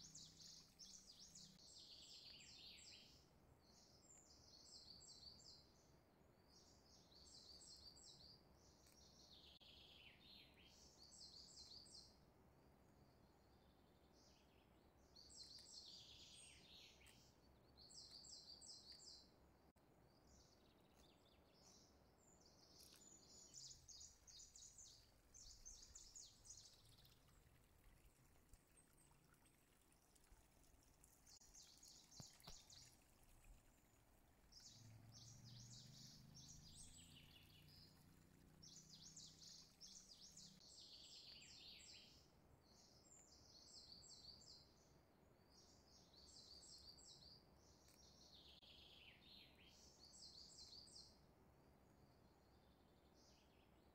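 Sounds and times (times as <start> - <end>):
birds chirping: 0.0 - 5.7, 20.2 - 29.9, 31.0 - 44.6.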